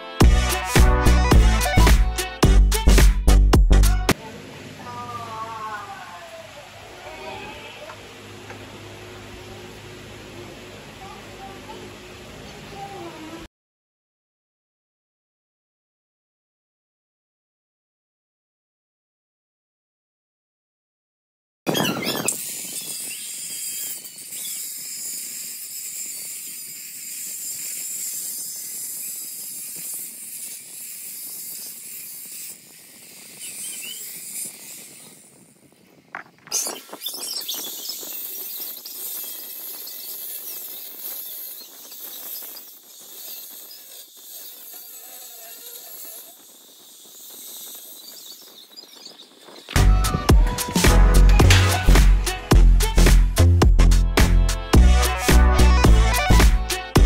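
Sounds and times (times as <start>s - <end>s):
gas hissing from hose: 22.0s - 53.5s.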